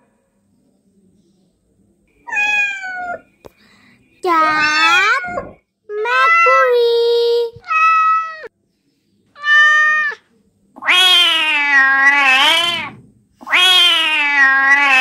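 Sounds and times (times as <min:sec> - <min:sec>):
cat meowing: 0:02.3 - 0:03.2, 0:04.6 - 0:06.7, 0:07.6 - 0:08.5, 0:09.4 - 0:10.2, 0:10.8 - 0:15.0.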